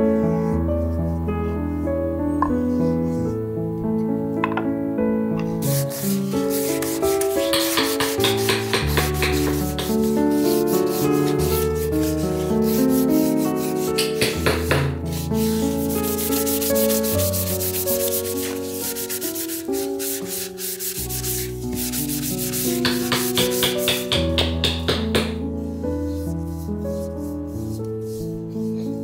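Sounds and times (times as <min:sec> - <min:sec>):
background music: 0:00.0 - 0:29.0
sandpaper rubbing on wood: 0:05.6 - 0:25.4.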